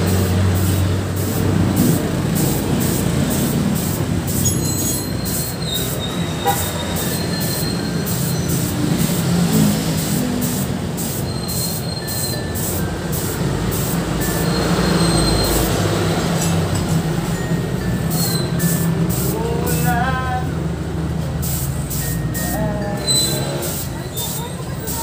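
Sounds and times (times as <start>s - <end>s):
spray gun hissing: 0.0s - 15.9s, 18.1s - 19.7s, 21.3s - 22.4s, 23.3s - 25.0s
thin high squeals: 4.3s - 8.7s, 11.0s - 16.6s, 17.3s - 19.9s, 21.9s - 25.0s.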